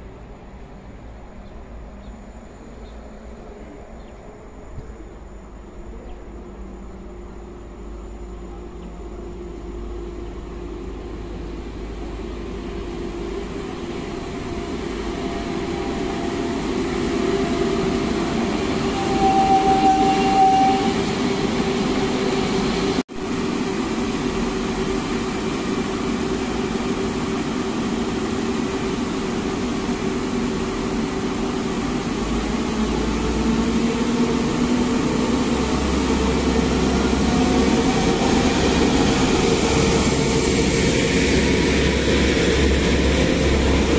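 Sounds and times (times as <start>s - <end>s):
electric train running hum: 0.0s - 43.9s
brief high squeal: 18.8s - 21.1s.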